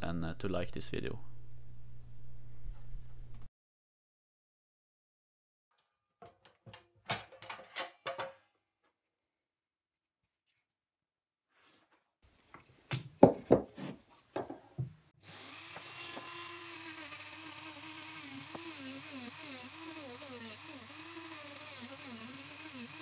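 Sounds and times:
rotary tool sanding wood: 15.2 - 23.0.

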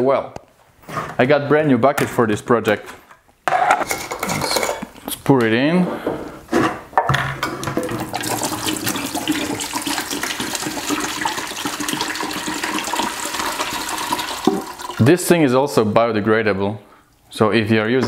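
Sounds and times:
liquid pouring into plastic bucket: 7.6 - 15.1.

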